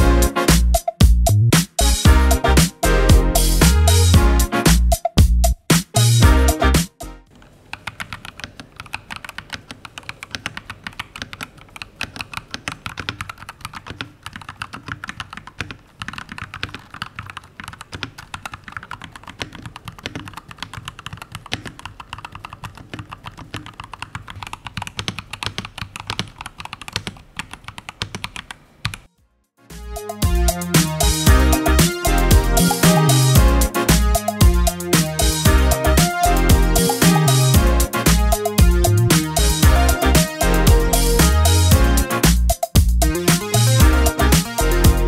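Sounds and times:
mechanical keyboard typing: 7.4s - 29.1s.

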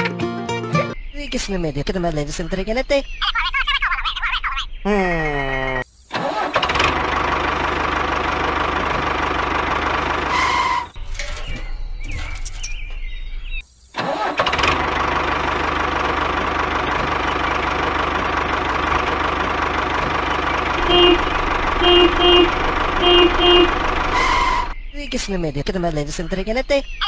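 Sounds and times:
tractor engine running: 6.2s - 13.4s, 14.0s - 27.0s.

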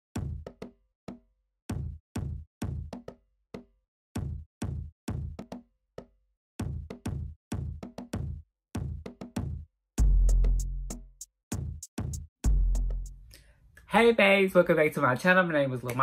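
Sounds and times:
stop-start drum beat: 0.1s - 0.7s, 1.7s - 3.1s, 4.2s - 5.6s, 6.6s - 13.2s.

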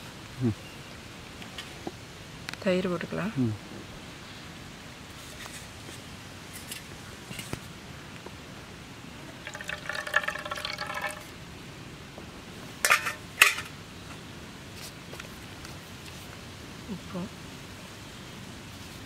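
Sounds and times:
liquid trickling into bowl: 9.3s - 11.3s.

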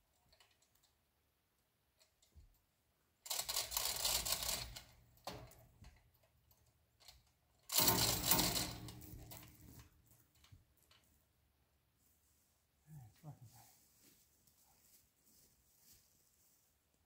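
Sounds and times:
hoist chain rattling and clicking: 3.3s - 11.0s.

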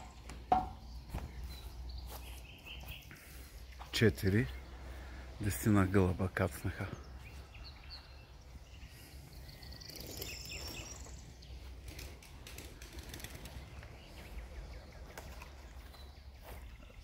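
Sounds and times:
high bird-like chirps: 7.6s - 11.7s.

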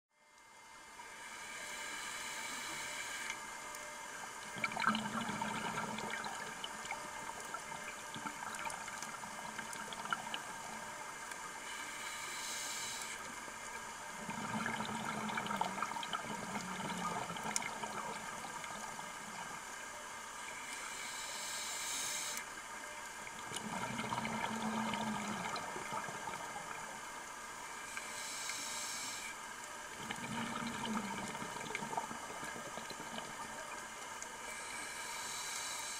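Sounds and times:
faint crackle: 0.2s - 35.9s
regulator inhale hiss: 1.1s - 3.4s, 11.5s - 13.4s, 20.5s - 22.6s, 27.6s - 29.5s, 34.4s - 35.9s
exhaled bubbles underwater: 4.4s - 11.0s, 14.1s - 19.7s, 23.4s - 27.0s, 29.9s - 33.7s.

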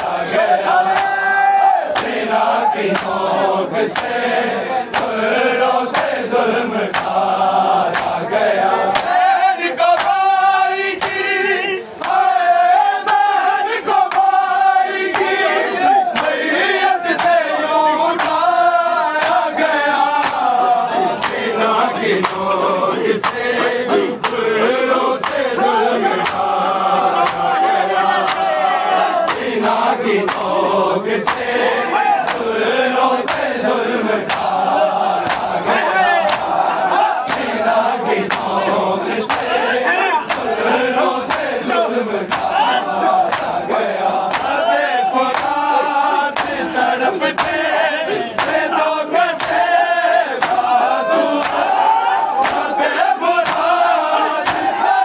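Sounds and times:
crowd chanting: 0.0s - 55.0s
hand strikes beating: 20.2s - 20.5s, 34.2s - 34.6s, 35.2s - 35.5s, 36.2s - 36.6s, 37.2s - 37.6s, 38.2s - 38.6s, 42.3s - 43.6s, 44.3s - 44.6s, 46.3s - 46.7s, 47.3s - 47.8s, 49.4s - 49.7s, 50.4s - 50.7s, 53.4s - 53.7s, 54.4s - 54.8s.

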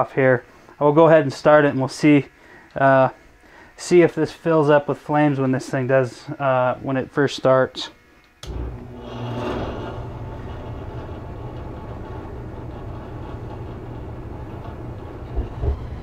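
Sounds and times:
furnace low rumble: 8.4s - 16.0s
gas burners lighting whoosh: 8.4s - 16.0s.

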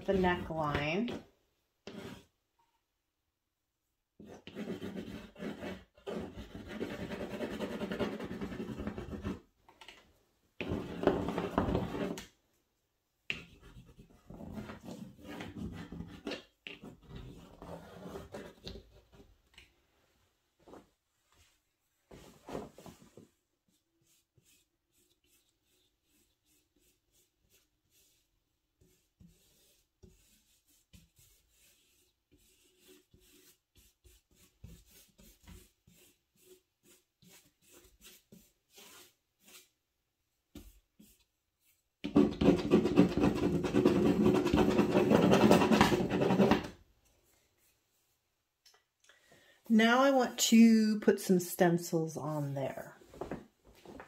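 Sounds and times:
crayon scratching on paper: 1.9s - 2.3s, 4.2s - 9.5s, 13.4s - 18.8s, 23.7s - 28.2s, 28.8s - 39.7s, 40.5s - 46.7s.

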